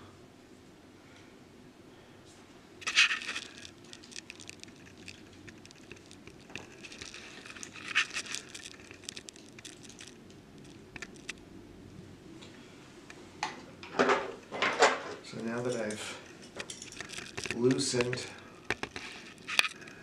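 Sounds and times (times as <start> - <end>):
pliers and metal parts clinking: 15.5 - 18.2.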